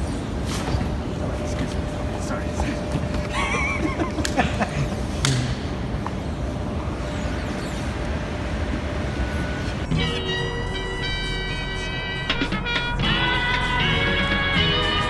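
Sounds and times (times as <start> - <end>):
low rumble and hiss of hall: 0.0 - 12.1
music: 9.9 - 15.0.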